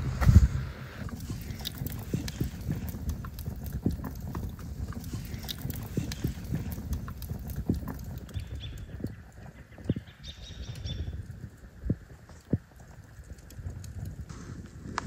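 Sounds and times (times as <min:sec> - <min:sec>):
wood fire crackling and popping: 0:00.0 - 0:15.0.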